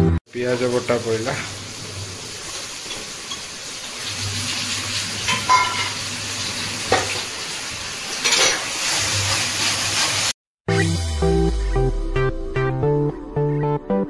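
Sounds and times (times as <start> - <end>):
paste sizzling in hot oil: 0.3 - 10.4
spatula clinking: 5.3 - 6.0.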